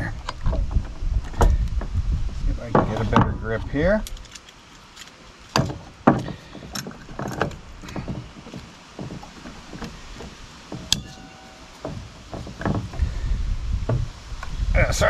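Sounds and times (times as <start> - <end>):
metal clinks and scrapes: 10.7 - 13.0
sharp ringing metallic clink: 10.9 - 11.8.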